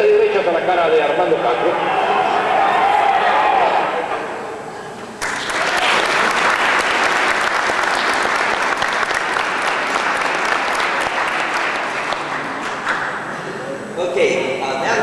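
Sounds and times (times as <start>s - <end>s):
audience applause: 5.2s - 13.2s.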